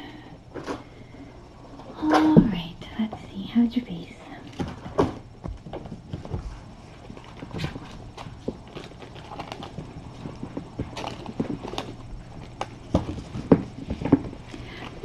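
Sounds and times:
low steady hum: 0.0s - 15.0s
kittens scampering on floor: 4.5s - 15.0s.

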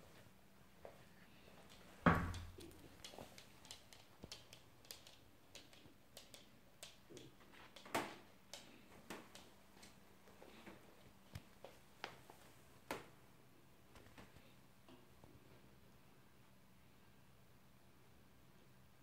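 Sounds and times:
dog claws clicking on floor: 1.6s - 10.6s.

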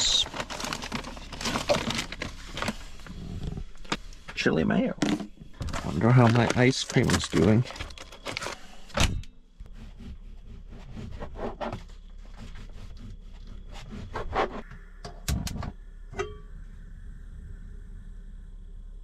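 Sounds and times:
rubbing and scraping: 0.0s - 8.8s, 9.6s - 14.7s
ringing clink: 16.2s - 16.6s.

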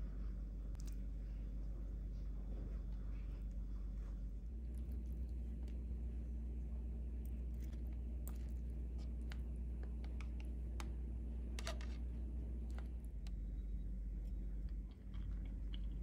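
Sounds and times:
steady low hum: 0.0s - 16.0s
faint clicks and taps: 7.2s - 12.0s.

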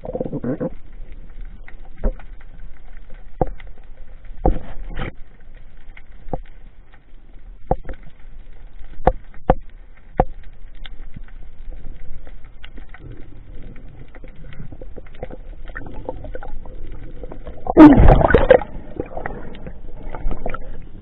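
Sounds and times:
low underwater rumble: 0.0s - 21.0s
sharp clicks and knocks: 8.8s - 10.6s.

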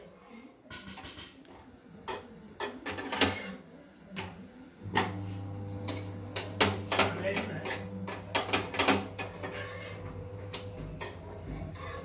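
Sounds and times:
utensils clicking and knocking: 5.9s - 9.7s.

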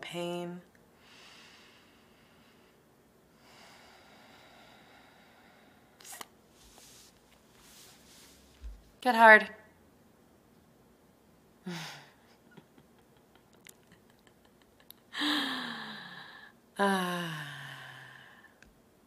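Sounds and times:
woman sighing: 11.6s - 12.2s, 15.1s - 18.4s.

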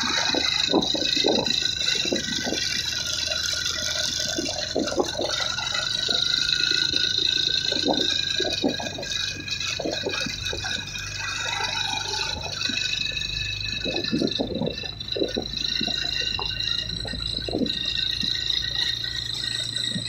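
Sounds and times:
wind buffeting microphone: 0.0s - 11.2s
steady high-pitched whine: 0.0s - 20.0s.

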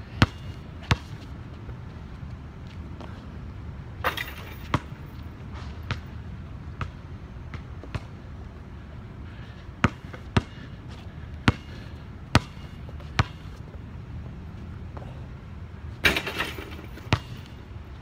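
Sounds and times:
basketball bouncing on hard ground: 0.1s - 1.8s, 4.0s - 8.2s, 9.5s - 15.3s, 16.0s - 18.0s.

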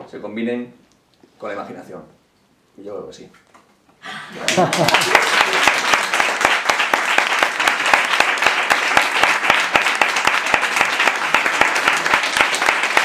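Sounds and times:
audience applauding: 4.3s - 13.0s.

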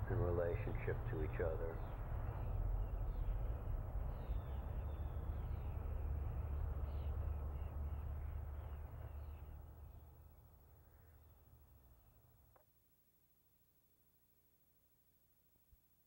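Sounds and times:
birds chirping: 0.0s - 11.4s.

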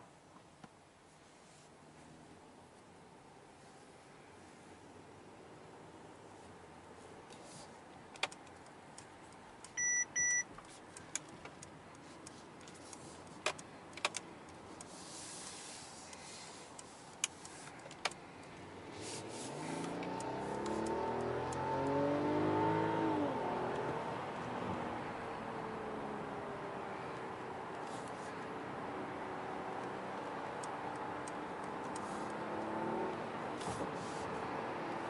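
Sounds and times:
road hum in car cabin: 0.0s - 35.0s
short beeps: 9.8s - 10.5s
car engine accelerating: 18.4s - 35.0s.

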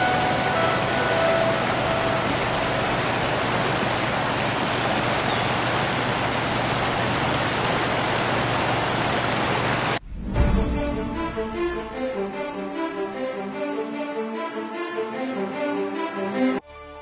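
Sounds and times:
river rushing over boulders: 0.0s - 10.0s.

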